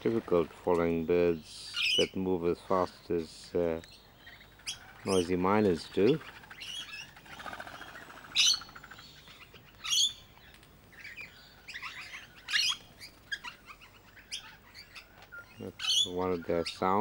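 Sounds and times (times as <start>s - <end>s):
short sharp high bird calls: 6.0s - 10.3s
bird buzzy rattle: 6.3s - 8.7s.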